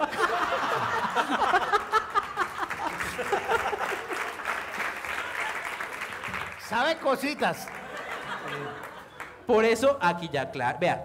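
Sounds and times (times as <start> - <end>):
audience laughing: 0.0 - 6.4, 7.4 - 9.5
audience clapping: 0.1 - 9.8.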